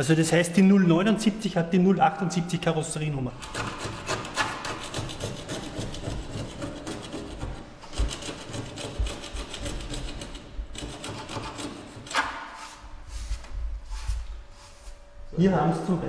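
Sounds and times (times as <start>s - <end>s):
hand scraping metal panel: 3.4s - 15.0s.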